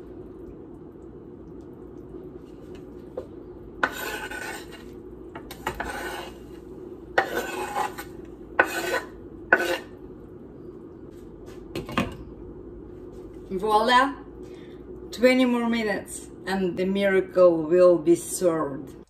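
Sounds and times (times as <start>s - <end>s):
steady low hum: 0.0s - 19.0s
knife scraping cutting board: 3.8s - 6.6s, 7.2s - 10.0s.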